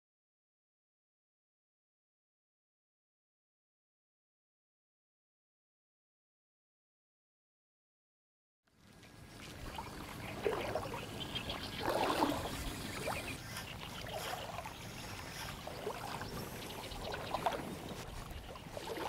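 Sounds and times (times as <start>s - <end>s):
river water sloshing and trickling: 8.7s - 19.0s.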